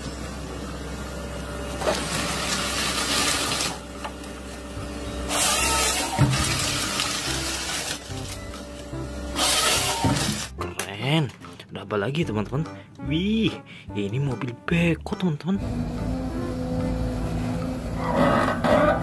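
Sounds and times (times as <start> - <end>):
rushing hydraulic machine noise: 0.0 - 10.6, 15.6 - 19.0
low diesel drone: 0.0 - 19.0.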